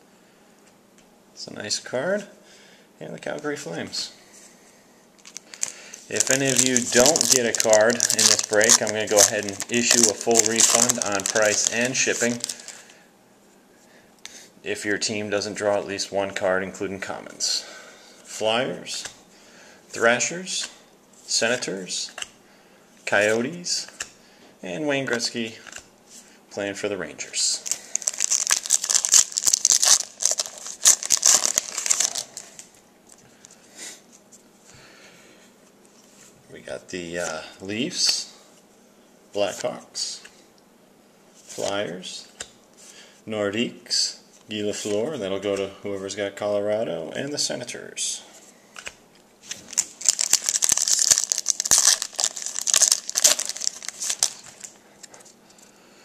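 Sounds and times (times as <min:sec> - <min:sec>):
foil wrapper crinkling and tearing: 0:05.2 - 0:12.8, 0:27.6 - 0:32.7, 0:49.4 - 0:54.7.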